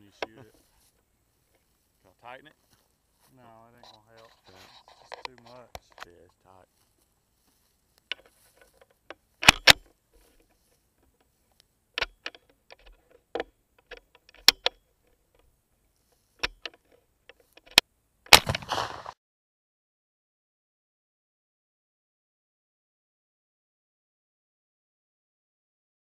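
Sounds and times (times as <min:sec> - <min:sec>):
rifle handling clicks and knocks: 0:05.0 - 0:06.2, 0:08.0 - 0:15.5, 0:16.4 - 0:19.0
rifle shot: 0:18.3 - 0:19.2.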